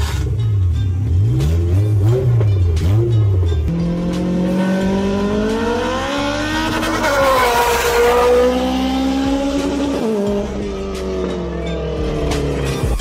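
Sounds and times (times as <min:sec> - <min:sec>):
car engine at high revs passing: 0:01.2 - 0:11.3.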